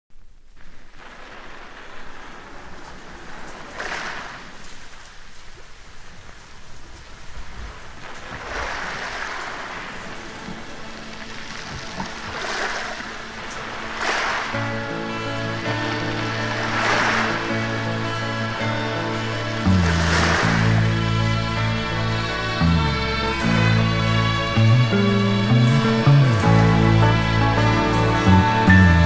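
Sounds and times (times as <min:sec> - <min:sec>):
sea waves washing in: 0:00.6 - 0:28.7
song music: 0:13.3 - 0:29.0.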